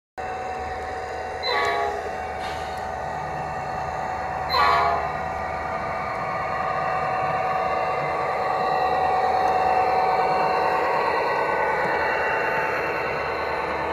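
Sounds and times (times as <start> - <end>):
diesel engine running sound: 0.2 - 13.9
model locomotive horn blasts: 1.4 - 2.6, 4.5 - 5.2.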